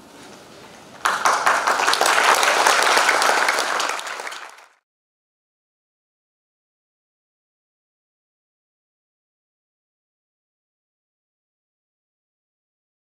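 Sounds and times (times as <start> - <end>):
audience applauding: 1.0 - 4.8.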